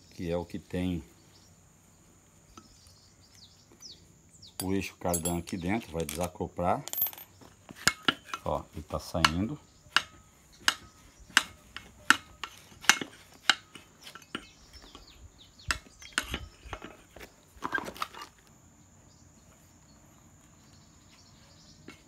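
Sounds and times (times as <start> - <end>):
sharp metallic clinks and knocks: 4.6 - 17.1.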